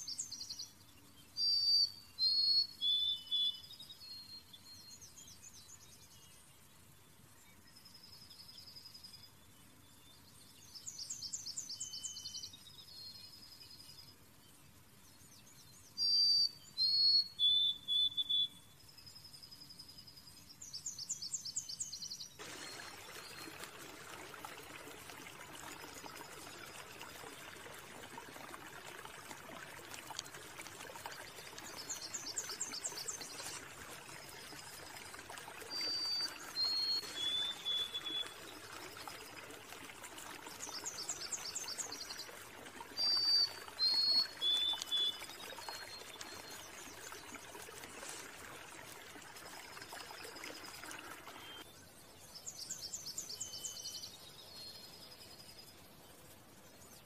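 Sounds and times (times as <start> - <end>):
songbird singing: 0.0 - 57.0
running water hiss: 22.4 - 51.7, 52.4 - 57.0.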